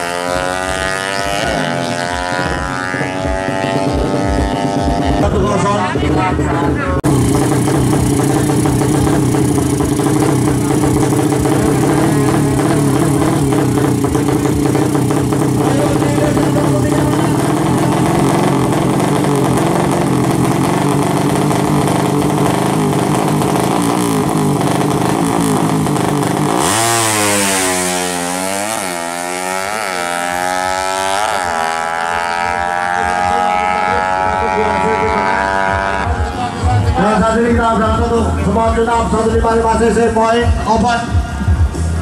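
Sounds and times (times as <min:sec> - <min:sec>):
motorcycle engine revving: 0:00.0 - 0:42.0.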